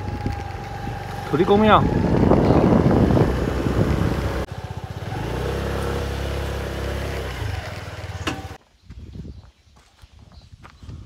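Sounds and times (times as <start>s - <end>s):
wind on microphone: 0.0s - 4.5s, 8.8s - 11.0s
scooter engine running: 0.0s - 8.6s.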